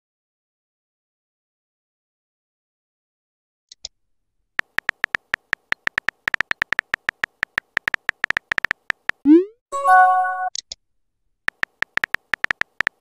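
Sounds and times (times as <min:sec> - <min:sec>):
keyboard keypress ticks: 0:04.6 - 0:09.3, 0:11.5 - 0:13.0.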